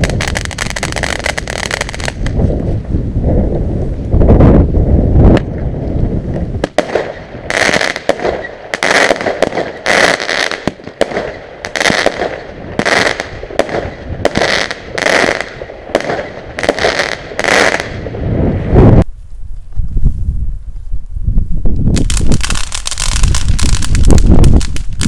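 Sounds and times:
firework bangs with crackle: 0:00.0 - 0:02.6, 0:06.3 - 0:19.0, 0:21.9 - 0:25.0.

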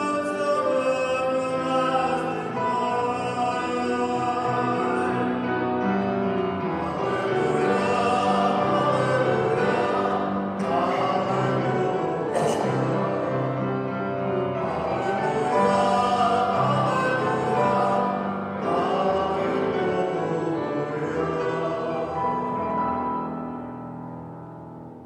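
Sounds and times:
church singing with accompaniment: 0:00.0 - 0:25.0.

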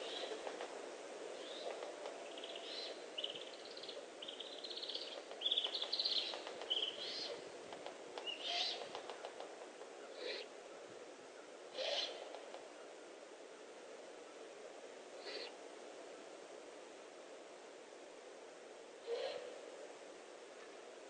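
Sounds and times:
steady background hiss: 0:00.0 - 0:21.0
owls chittering calls: 0:05.4 - 0:07.4, 0:08.3 - 0:08.8, 0:11.8 - 0:12.2, 0:15.2 - 0:15.5.

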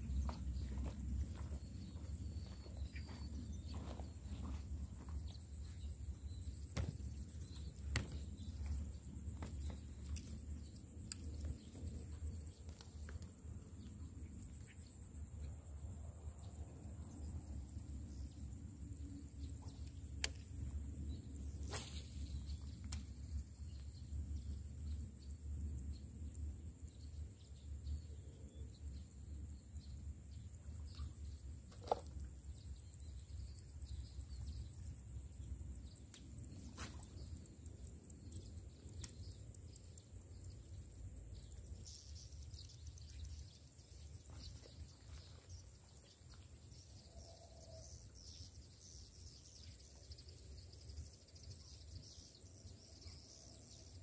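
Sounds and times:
faint bird chirps: 0:26.9 - 0:54.0.

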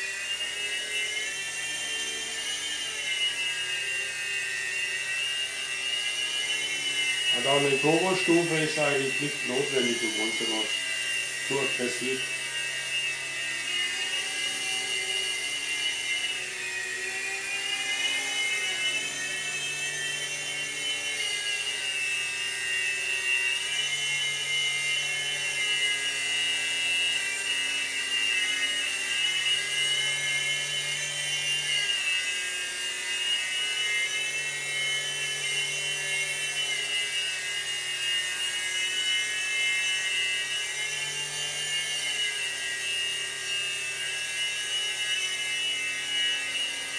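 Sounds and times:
toy helicopter rotor whine: 0:00.0 - 0:46.9.

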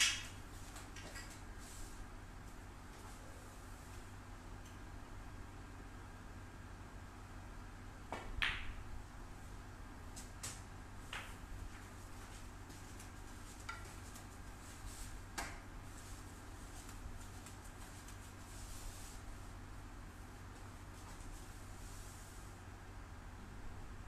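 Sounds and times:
snooker balls clacking: 0:08.1 - 0:08.8
cue striking ball: 0:08.2 - 0:08.8
faint ball clicks and knocks: 0:13.0 - 0:14.3.

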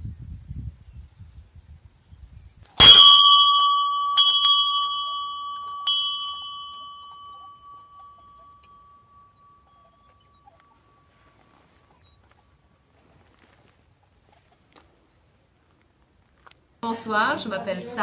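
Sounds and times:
metal bell ringing: 0:02.8 - 0:12.1.

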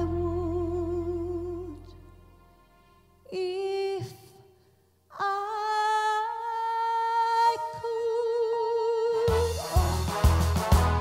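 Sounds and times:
woman singing a slow ballad: 0:00.0 - 0:02.1, 0:03.3 - 0:04.5, 0:05.1 - 0:09.4.

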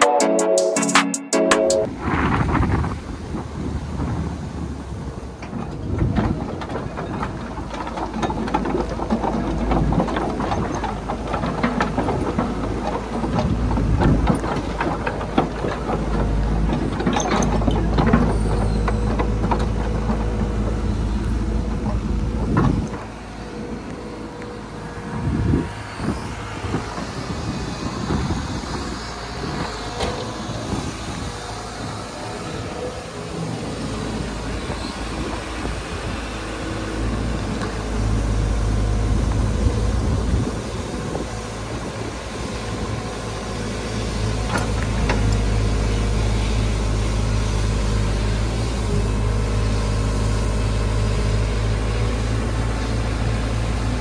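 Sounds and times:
excavator diesel engine: 0:00.0 - 0:54.0
steel tracks clanking: 0:02.9 - 0:45.5.

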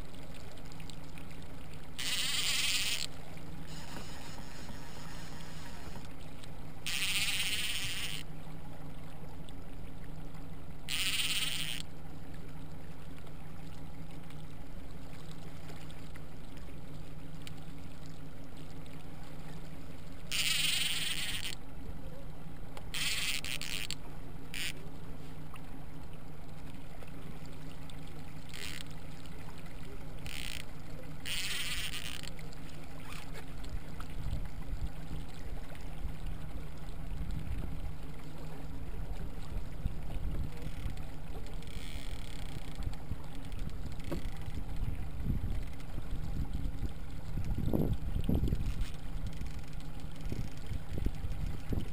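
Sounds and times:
outboard motor humming: 0:00.0 - 0:51.9
fishing reel drag buzzing: 0:02.0 - 0:06.1, 0:06.8 - 0:08.3, 0:10.8 - 0:11.9, 0:20.2 - 0:21.6, 0:22.9 - 0:24.8, 0:28.4 - 0:29.2, 0:30.2 - 0:33.4, 0:40.6 - 0:42.8, 0:43.9 - 0:44.8, 0:48.6 - 0:50.9.

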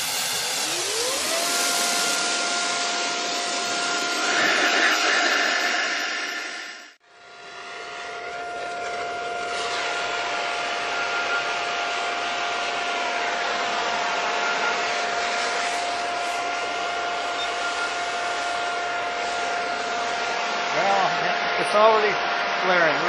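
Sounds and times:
electric blower fan whining: 0:00.0 - 0:23.0.

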